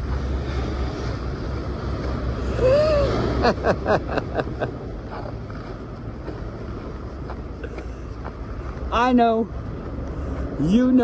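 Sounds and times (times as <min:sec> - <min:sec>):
highway traffic rumble: 0:00.0 - 0:11.0.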